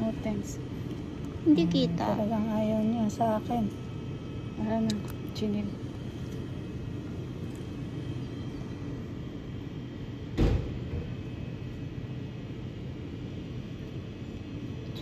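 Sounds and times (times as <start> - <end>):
loud thump: 10.4 - 11.0.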